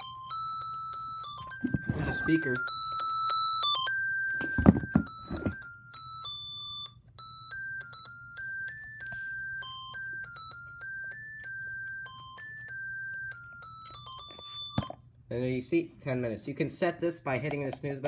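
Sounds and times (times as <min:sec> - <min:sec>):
clock radio melody alarm: 0:00.0 - 0:15.0.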